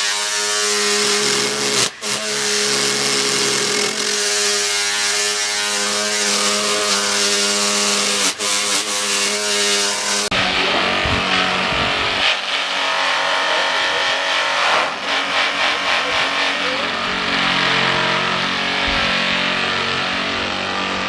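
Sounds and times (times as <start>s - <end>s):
brush scrubbing log: 0.0s - 10.3s
electric motor hum: 0.0s - 21.0s.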